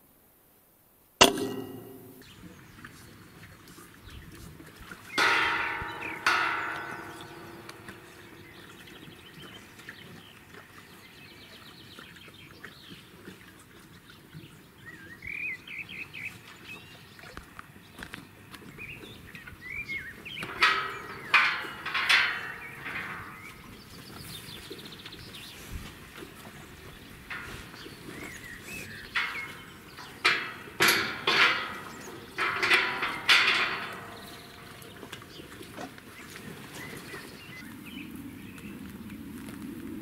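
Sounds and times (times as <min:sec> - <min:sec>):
steel gate clanging: 0:01.2 - 0:02.3, 0:05.2 - 0:09.3, 0:20.4 - 0:23.9, 0:27.3 - 0:35.4.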